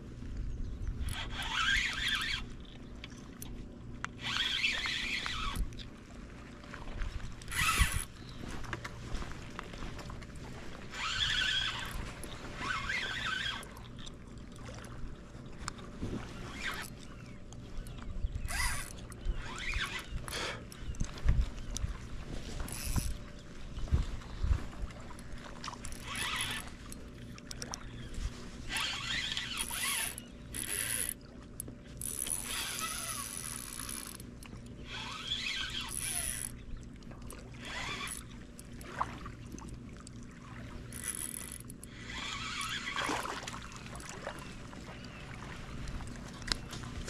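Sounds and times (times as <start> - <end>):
fishing reel whirring and clicking: 0.9 - 6.0, 7.4 - 8.9, 10.9 - 14.9, 16.4 - 21.0, 22.5 - 23.3, 25.2 - 36.7, 37.3 - 38.9, 40.8 - 44.4.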